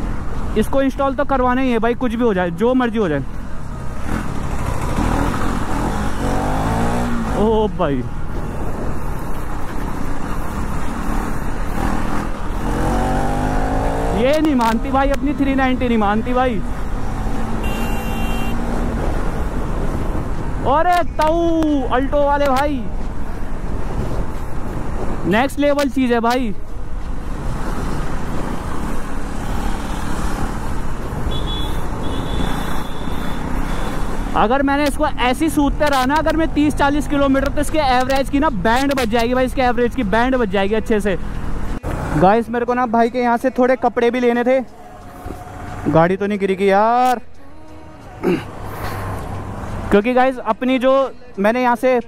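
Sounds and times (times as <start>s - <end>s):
motorcycle engine riding: 3.3s - 20.8s.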